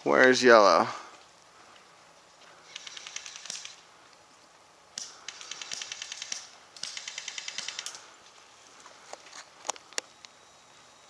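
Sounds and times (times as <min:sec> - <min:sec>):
airsoft gun firing bursts: 0:02.6 - 0:03.8, 0:05.0 - 0:08.1.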